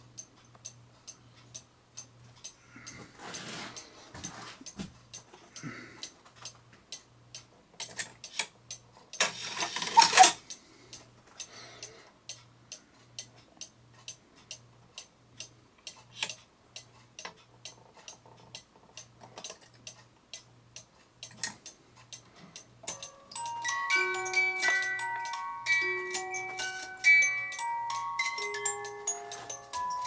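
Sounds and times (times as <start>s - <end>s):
clock ticking: 0.0s - 30.0s
rustling scrape: 3.1s - 4.6s.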